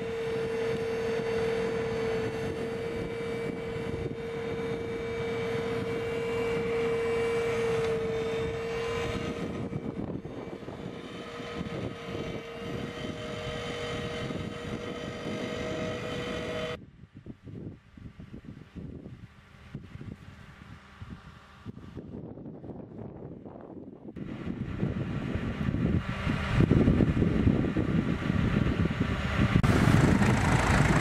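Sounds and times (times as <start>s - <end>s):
flail mower cutting grass: 0.0s - 16.8s, 25.2s - 31.0s
high-pitched whine: 0.0s - 16.8s.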